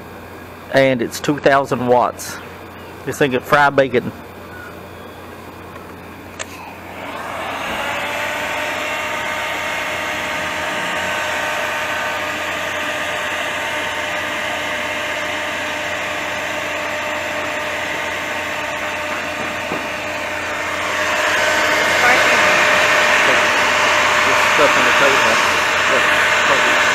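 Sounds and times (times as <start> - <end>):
heat gun fan whine: 0.0 - 26.9
hot air hissing: 6.4 - 26.9.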